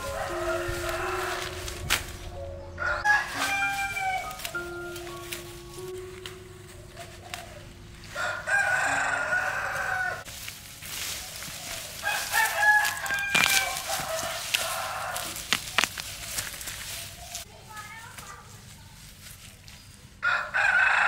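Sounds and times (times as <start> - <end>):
rooster crowing: 0.0 - 1.8, 2.8 - 4.6, 8.1 - 10.3, 11.6 - 16.0, 20.2 - 21.0.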